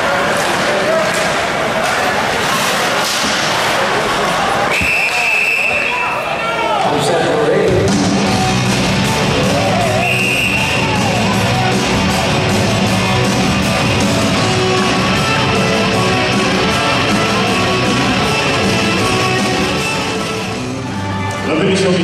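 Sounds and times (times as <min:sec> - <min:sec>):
rock music with guitar: 0:07.8 - 0:21.4.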